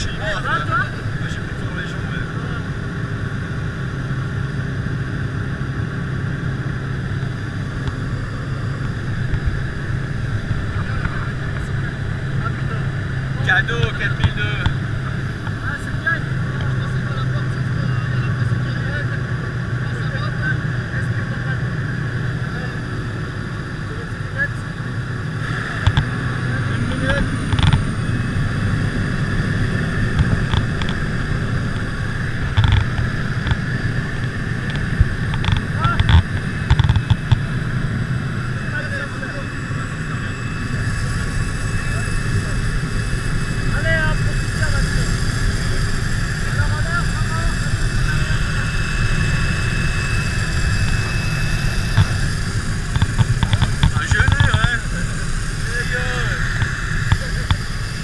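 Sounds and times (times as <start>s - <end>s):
plane engine and propeller drone: 0.0s - 58.0s.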